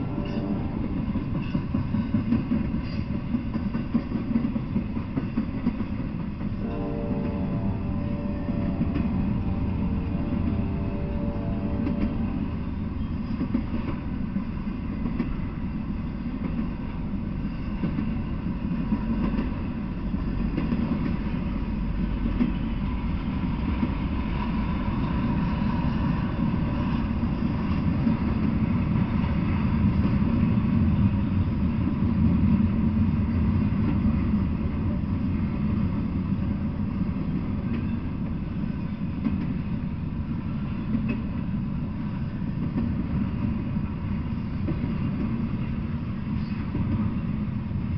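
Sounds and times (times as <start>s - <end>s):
freight train wheels on rails: 0.0s - 47.9s.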